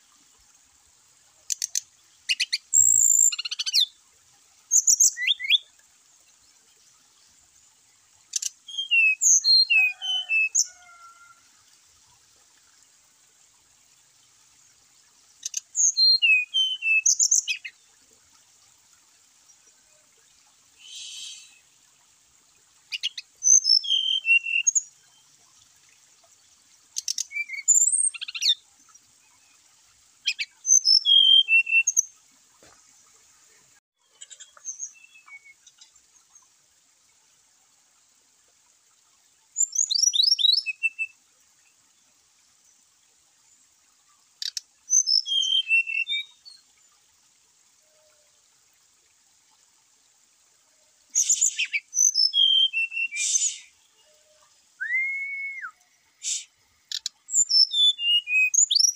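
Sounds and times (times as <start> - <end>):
bird singing whistles and trills: 2.3 - 3.9, 4.7 - 5.6, 8.7 - 10.6, 15.8 - 17.7, 20.8 - 21.6, 23.0 - 24.8, 27.1 - 28.5, 30.3 - 32.0, 39.6 - 41.2, 44.9 - 46.6, 51.2 - 53.7, 54.8 - 56.5, 57.3 - 58.9.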